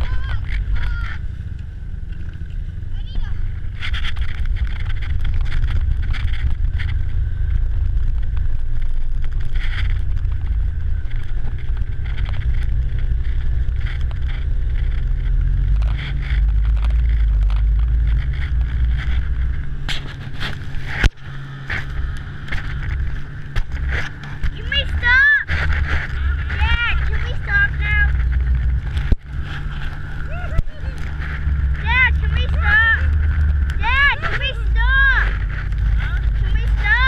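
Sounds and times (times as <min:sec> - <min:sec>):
vehicle engine low rumble: 0:00.0 - 0:37.0.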